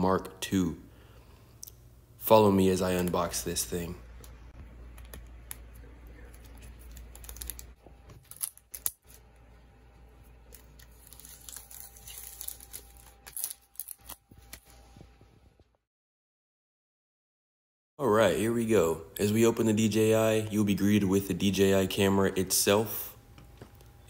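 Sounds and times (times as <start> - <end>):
low steady hum: 0.0 - 15.8
plastic wrapping peeled off: 6.2 - 9.4, 10.4 - 14.8.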